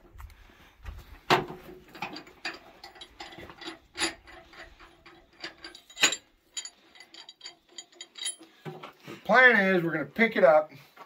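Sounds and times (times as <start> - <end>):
metallic clicking and clanking: 1.8 - 8.8.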